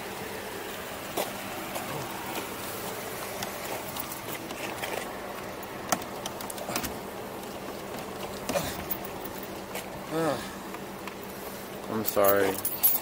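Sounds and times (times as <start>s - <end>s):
steady low hum: 0.0s - 13.0s
sharp clicks and knocks: 3.4s - 9.1s.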